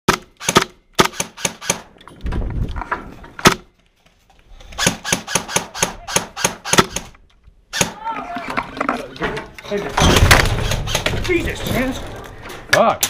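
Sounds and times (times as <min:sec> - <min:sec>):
airsoft gun shots: 0:04.8 - 0:07.1.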